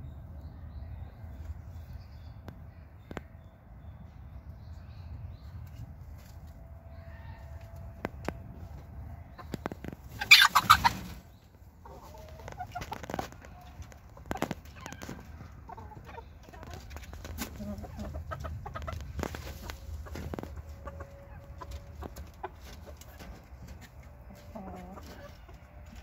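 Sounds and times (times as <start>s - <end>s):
chickens clucking: 5.4s - 26.0s.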